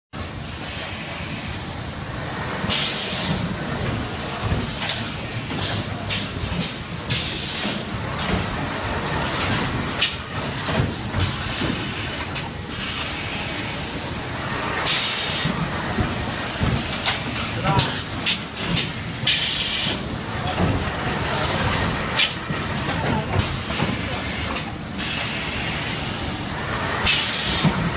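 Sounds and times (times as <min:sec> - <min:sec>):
pneumatic air hisses: 0:02.7 - 0:03.4, 0:04.8 - 0:08.4, 0:14.8 - 0:15.6, 0:17.8 - 0:20.3, 0:27.0 - 0:27.9
machine clicks and knocks: 0:03.3 - 0:12.5, 0:15.4 - 0:24.7.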